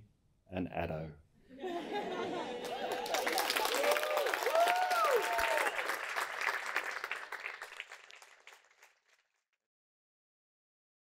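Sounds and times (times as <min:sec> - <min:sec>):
guests applauding and cheering: 0:02.4 - 0:09.2
whoops: 0:02.6 - 0:06.0.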